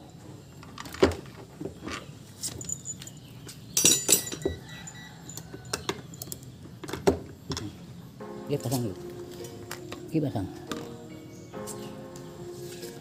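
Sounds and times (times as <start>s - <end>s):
ringing jingling clinks: 2.5s - 6.2s.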